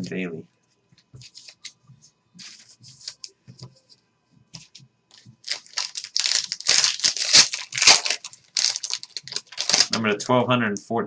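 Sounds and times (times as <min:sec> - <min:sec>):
wrapper torn and crumpled: 0:05.4 - 0:10.0.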